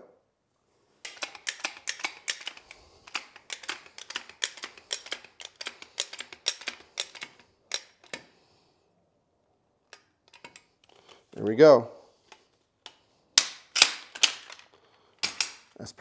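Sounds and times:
pipe cutter clicking: 1.1s - 8.3s.

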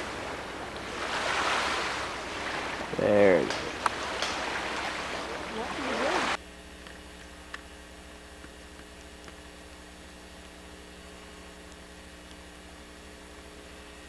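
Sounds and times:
loud outdoor noise: 0.0s - 7.3s
faint electrical hum and hiss: 0.0s - 14.0s.

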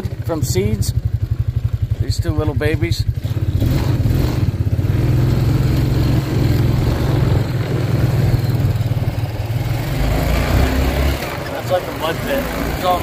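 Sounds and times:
atv engine running: 0.0s - 13.0s.

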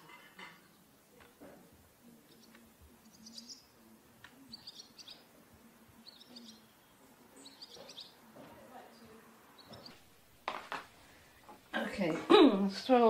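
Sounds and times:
faint bird chirps: 2.2s - 5.3s, 6.0s - 8.3s, 9.5s - 10.0s.

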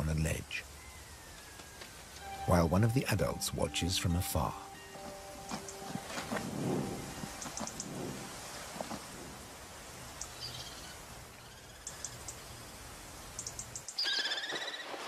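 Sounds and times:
steady hiss: 0.0s - 14.0s
very high chirps: 2.2s - 8.2s.

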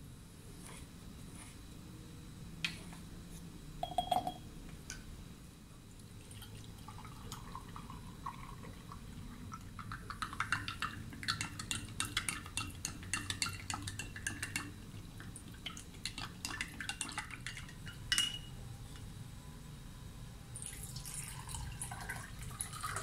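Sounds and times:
glass clink: 3.8s - 4.4s, 18.1s - 18.5s
spoon clicking in jar: 3.8s - 4.4s
water pouring into glass jar: 20.6s - 23.0s.

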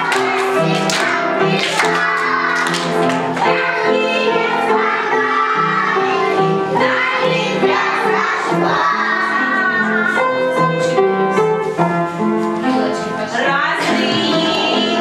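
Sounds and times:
children singing a song: 0.0s - 11.3s, 13.8s - 15.0s.

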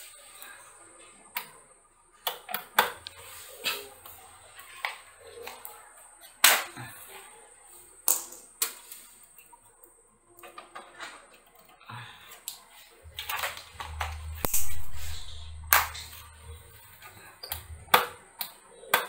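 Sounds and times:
faint high whine: 12.9s - 17.5s.

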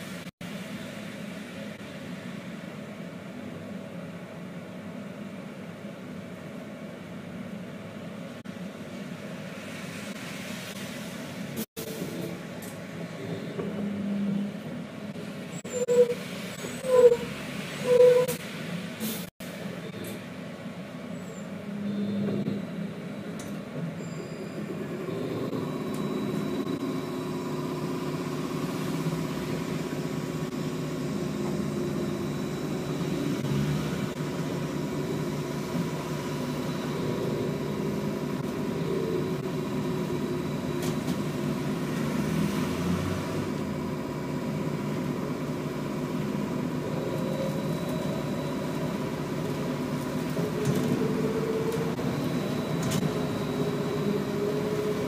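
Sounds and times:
road and body rumble: 0.0s - 55.0s.

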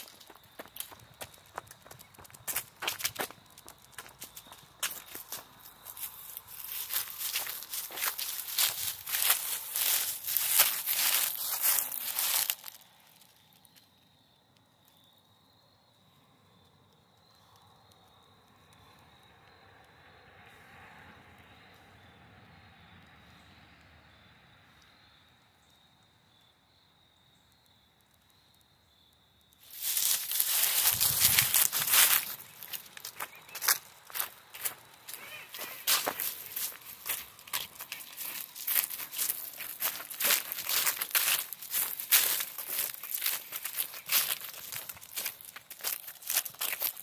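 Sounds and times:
footsteps in dry leaves: 0.0s - 13.6s, 29.6s - 47.0s
high insect trill: 0.0s - 20.2s, 25.0s - 47.0s.

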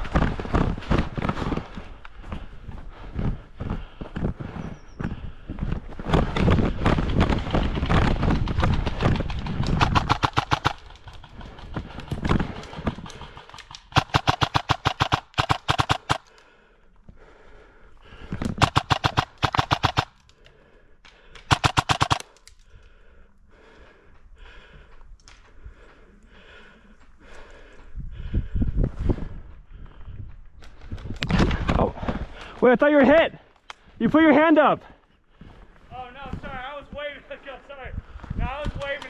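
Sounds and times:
airsoft gun full-auto bursts: 7.2s - 11.7s, 12.4s - 16.4s, 18.6s - 20.2s, 21.5s - 22.4s.

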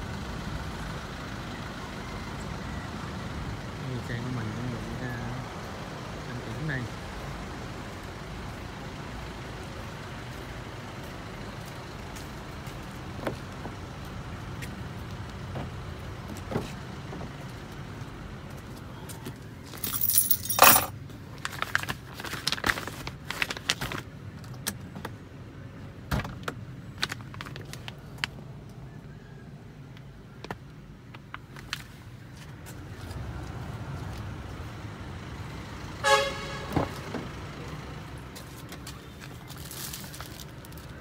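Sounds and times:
outdoor background hum: 6.9s - 41.0s
keys jangling: 19.8s - 20.9s.

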